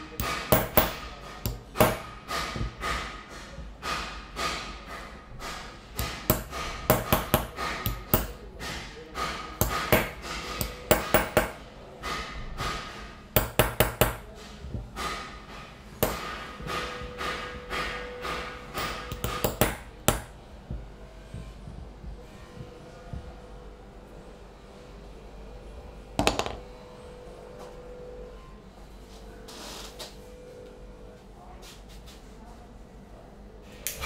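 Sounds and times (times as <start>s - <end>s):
hammer tapping metal tool: 0.1s - 12.8s, 13.4s - 14.3s, 15.0s - 23.3s, 26.2s - 26.7s.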